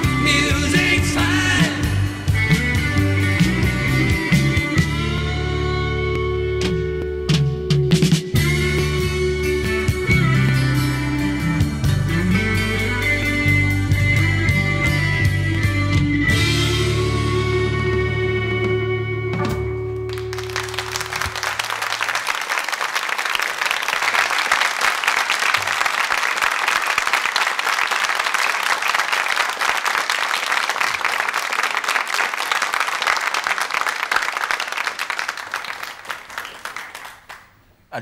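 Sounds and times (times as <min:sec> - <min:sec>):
audience applauding: 0:20.0 - 0:38.0.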